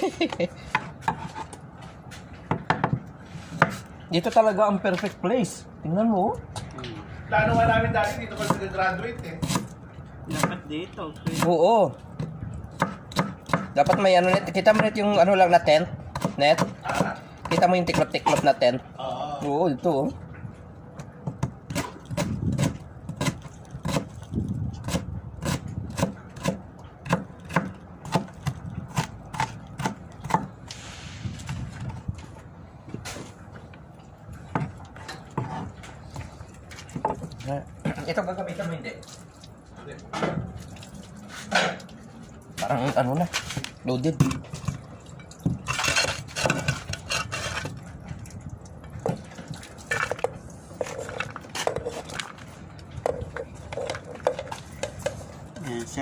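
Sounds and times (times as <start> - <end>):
rustling and scraping at metal pot: 0.0 - 2.5, 3.1 - 5.2, 28.4 - 56.0
knife chopping on a board: 2.5 - 3.8, 9.4 - 9.7, 12.2 - 15.1, 16.1 - 18.5, 21.2 - 24.2, 24.8 - 30.5.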